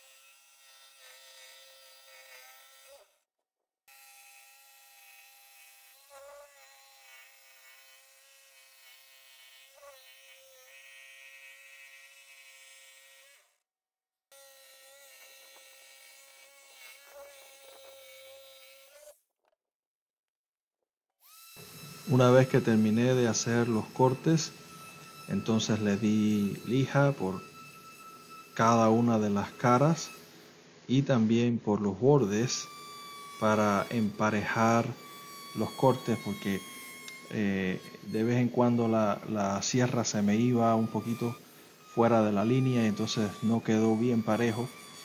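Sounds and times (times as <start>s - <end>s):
jigsaw cutting plywood: 3.9s - 13.5s.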